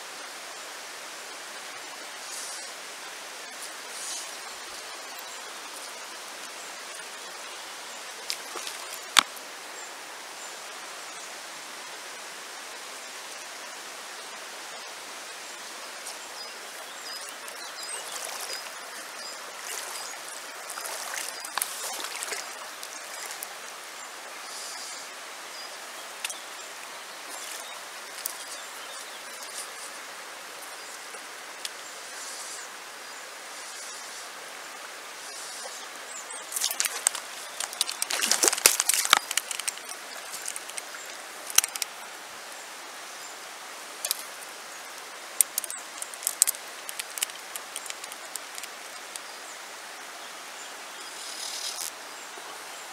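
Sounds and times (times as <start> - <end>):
river water flowing over stones: 0.0 - 52.9
small ticks: 36.5 - 41.9, 44.0 - 44.3, 45.4 - 49.3.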